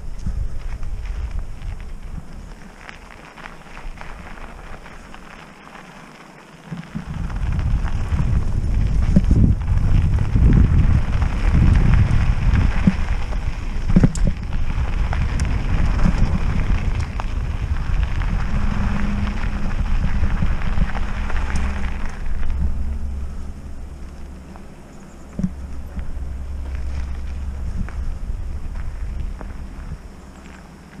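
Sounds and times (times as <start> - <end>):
bike tyres crackling on dirt: 0.0 - 31.0
wind rumbling on microphone: 0.0 - 31.0.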